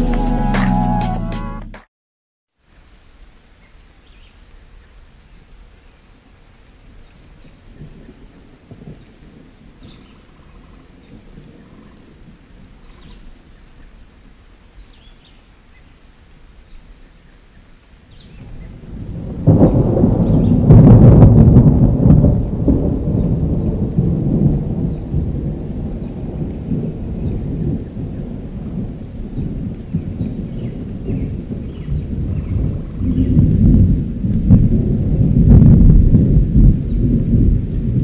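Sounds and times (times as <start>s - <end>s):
thunder rumble and crack: 7.7s - 13.2s, 18.3s - 38.0s.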